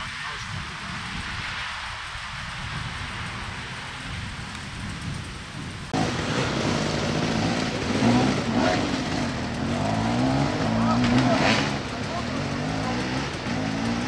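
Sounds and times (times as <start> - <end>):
steady rushing noise: 0.0 - 14.0
dirt bike engine revving: 6.0 - 14.0.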